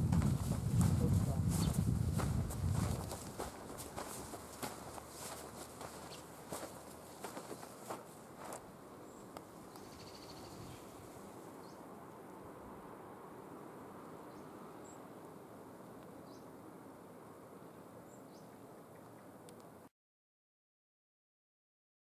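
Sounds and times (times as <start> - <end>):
footsteps crunching on dirt: 0.0 - 8.8
steady background hiss: 3.3 - 19.9
high rising bird chirps: 9.1 - 10.7.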